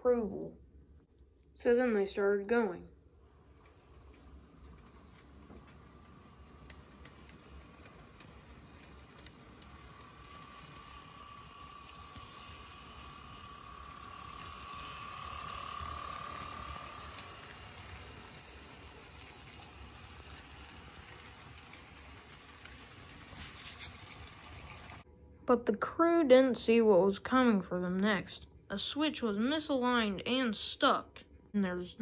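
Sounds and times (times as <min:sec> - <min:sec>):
model train running on track: 0:03.2 - 0:25.0.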